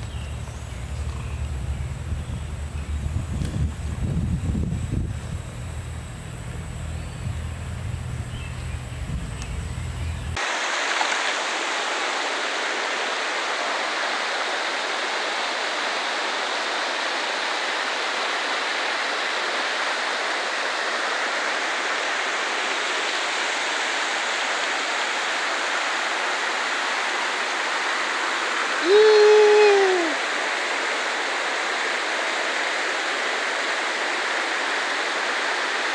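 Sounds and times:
wind rumble on microphone: 0.0s - 10.4s
river rapids and waterfall: 10.4s - 35.9s.

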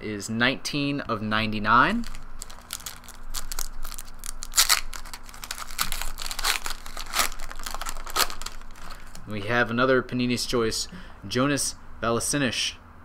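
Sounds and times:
wrapper crinkling: 1.9s - 9.3s
wrapper ripping: 1.9s - 9.3s.

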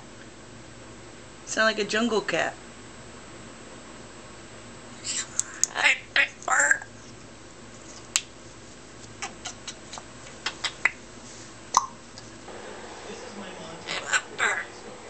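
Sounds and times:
parrot squawks and chirps: 5.0s - 6.9s, 13.8s - 14.8s.

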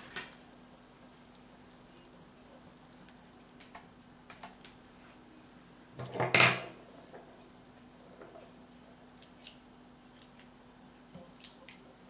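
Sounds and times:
metal tools clattering: 6.0s - 6.7s.

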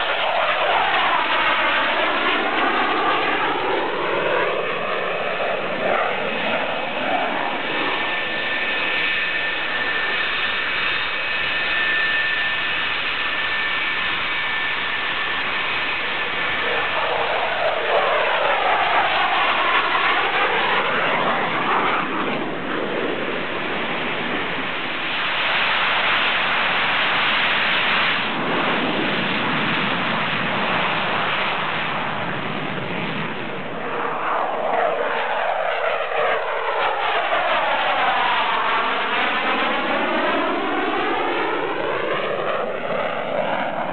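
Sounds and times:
jet engine whine: 0.0s - 43.9s.

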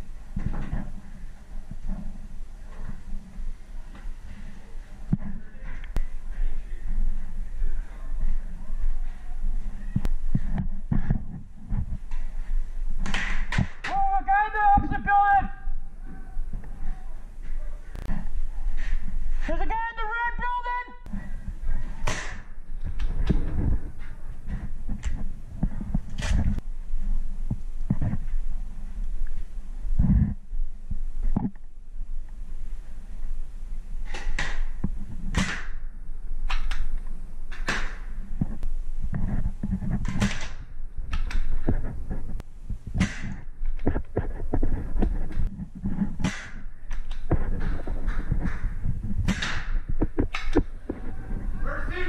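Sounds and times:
footsteps: 0.0s - 31.7s, 36.8s - 52.0s
low thumping: 21.0s - 29.2s, 37.1s - 52.0s.

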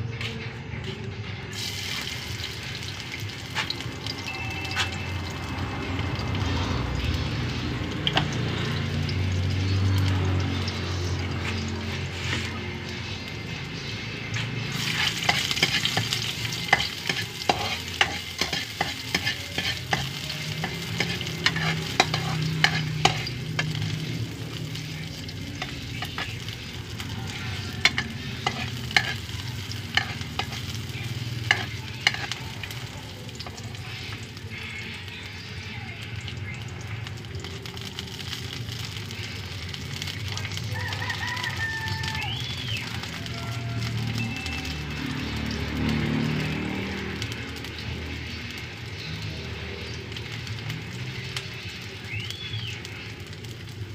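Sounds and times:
vegetables sizzling in a wok: 1.5s - 53.9s
metal spatula scraping a pan: 14.7s - 24.2s, 24.9s - 34.2s.

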